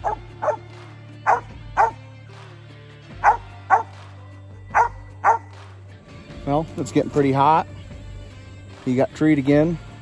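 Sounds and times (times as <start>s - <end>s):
dog barking sharply: 0.0s - 0.6s, 1.3s - 2.0s, 3.2s - 3.9s, 4.7s - 5.5s.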